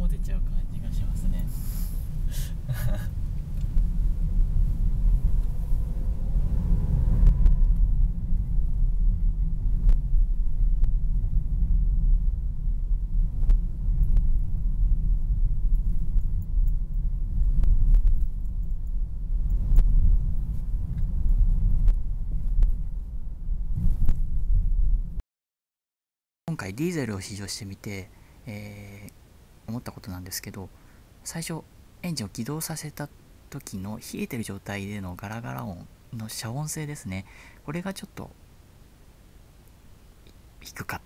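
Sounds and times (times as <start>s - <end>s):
car engine and road noise: 0.0s - 25.2s.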